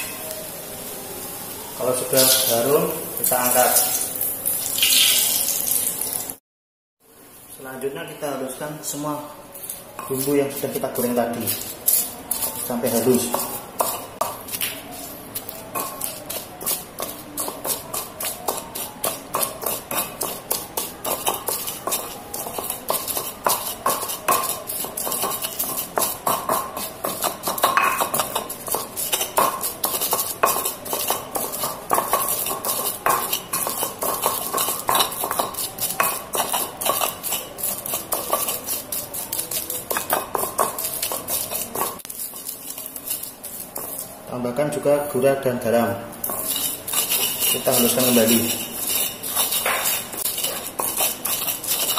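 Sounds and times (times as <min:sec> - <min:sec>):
pestle grinding in stone mortar: 0:09.5 - 0:45.2, 0:46.1 - 0:51.9.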